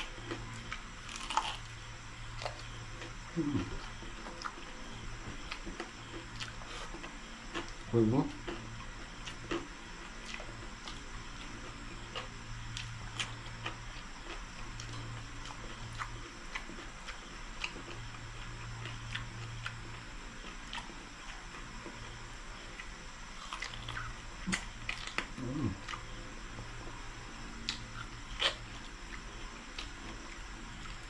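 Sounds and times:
person humming: 3.4 - 3.8, 25.4 - 25.8.

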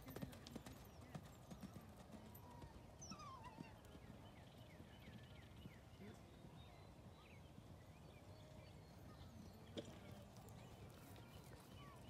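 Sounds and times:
horse hoofbeats on sand: 0.0 - 2.8.

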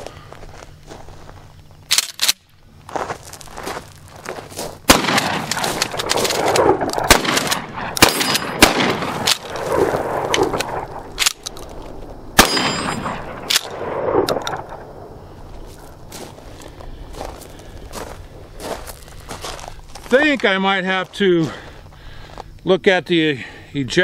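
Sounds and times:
shotgun shots: 4.9 - 11.4, 12.4 - 15.1.

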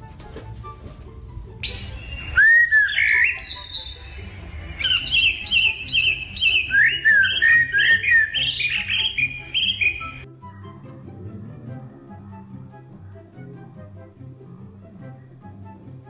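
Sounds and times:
parrot whistled chirps: 1.6 - 10.3.

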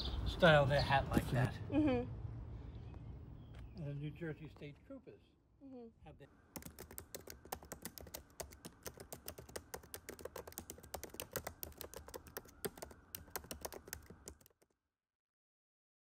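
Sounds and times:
keyboard key clicks: 6.6 - 14.6.

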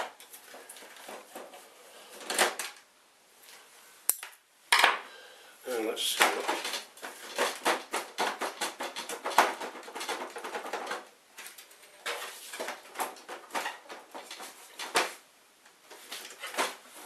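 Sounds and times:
plastic parts clicking and rattling: 0.0 - 2.9, 6.1 - 15.2.

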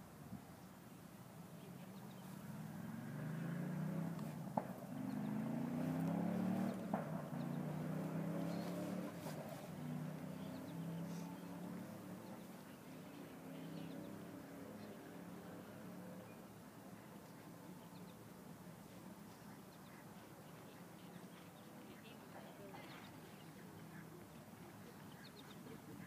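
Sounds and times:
vehicle engine running: 2.0 - 16.4.

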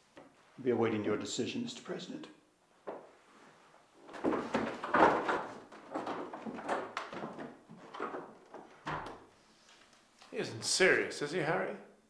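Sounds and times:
door opening and shutting: 4.1 - 9.3.

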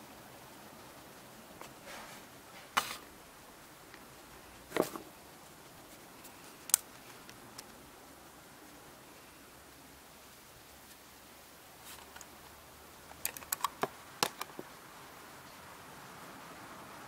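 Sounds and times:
hard plastic clicks: 13.1 - 14.6.

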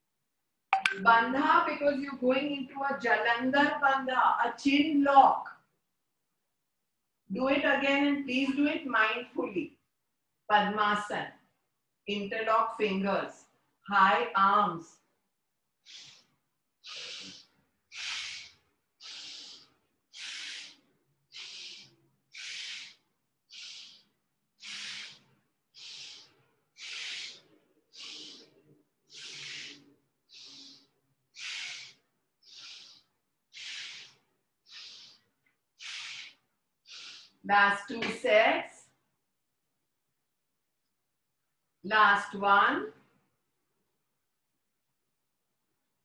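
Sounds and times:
forceful breaths through the nose: 15.8 - 37.5.

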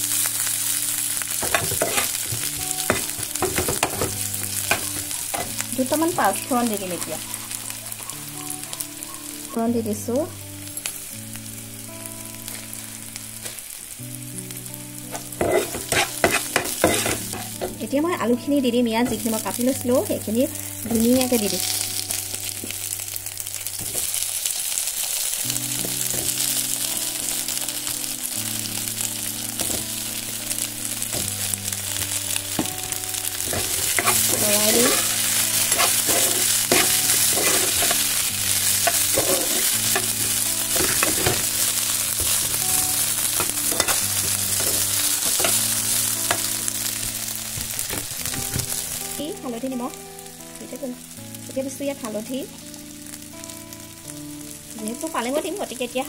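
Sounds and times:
potatoes sizzling in oil: 0.0 - 56.0
metal spatula scraping pan: 1.4 - 5.6, 15.1 - 17.8, 33.4 - 45.7.

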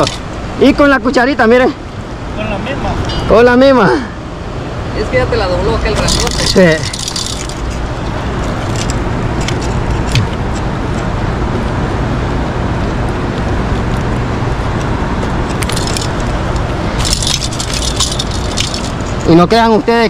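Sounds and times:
constant hiss: 0.0 - 20.0
steady low rumble: 0.0 - 20.0
high rattling scrapes: 6.0 - 10.1, 16.9 - 19.4.

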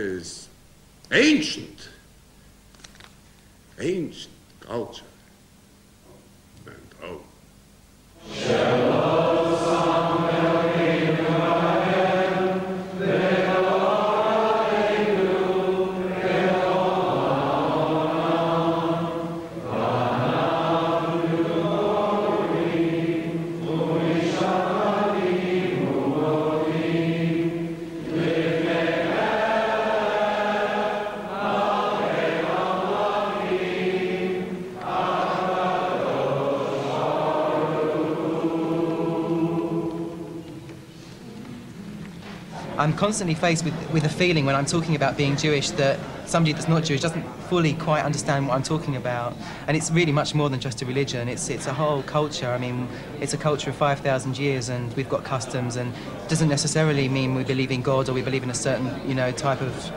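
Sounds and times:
person singing a slow chant: 8.2 - 42.8
singer breathing: 49.4 - 49.7, 52.9 - 53.2, 55.9 - 56.2.

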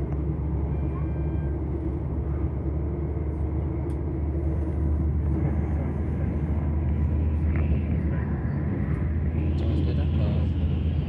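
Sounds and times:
freight train passing: 0.0 - 11.0
train interior low rumble: 0.0 - 11.0.

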